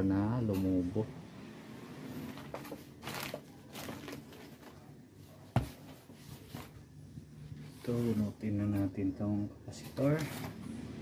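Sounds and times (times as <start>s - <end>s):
rustling and handling noises: 2.1s - 8.9s, 9.7s - 10.7s.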